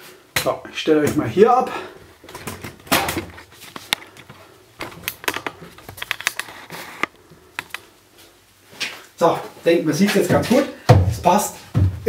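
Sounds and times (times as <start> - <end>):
camera handling clicks and knocks: 2.8 - 7.8.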